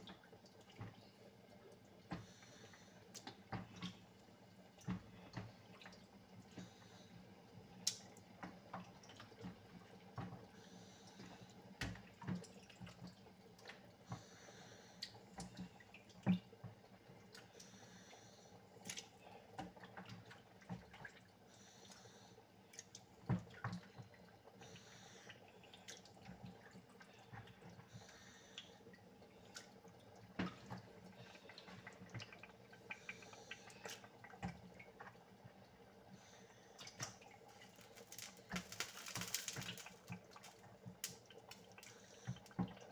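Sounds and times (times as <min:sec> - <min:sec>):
faint steady hum: 0:00.0 - 0:42.9
stew bubbling and plopping: 0:15.0 - 0:17.8, 0:18.8 - 0:42.9.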